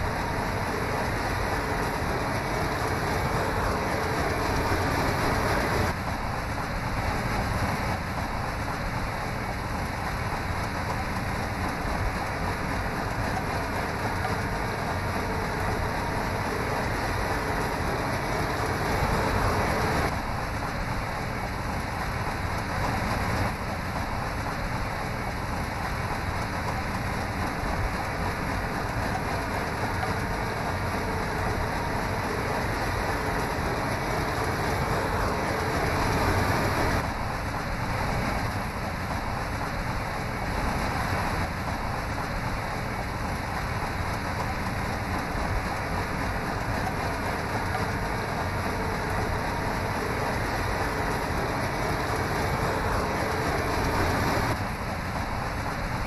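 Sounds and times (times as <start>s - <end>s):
harvester machinery rushing noise: 0.0s - 8.2s, 8.8s - 55.9s.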